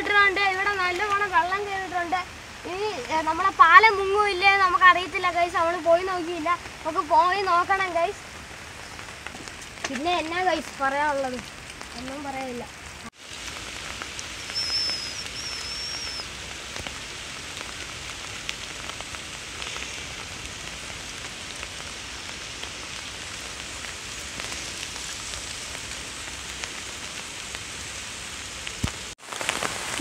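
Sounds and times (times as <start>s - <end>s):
rain falling: 0.0s - 30.0s
high wavering whistling call: 14.5s - 16.3s.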